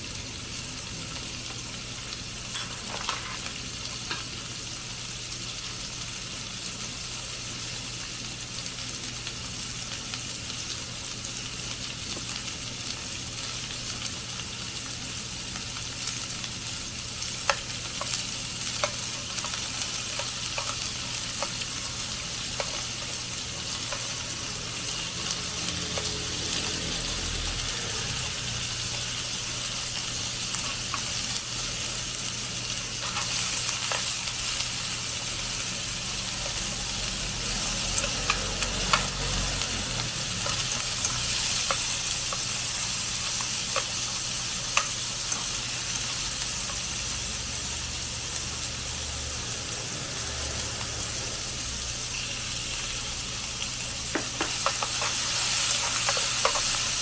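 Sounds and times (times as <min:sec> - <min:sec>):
meat and onion sizzling in a pan: 0:00.0 - 0:57.0
chopsticks ticking against pan: 0:17.4 - 0:23.2, 0:36.0 - 0:45.6.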